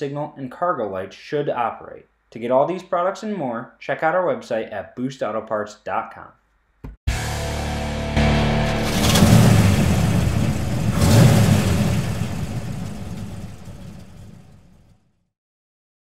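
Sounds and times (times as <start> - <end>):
engine idling and revving: 7.1 - 14.9.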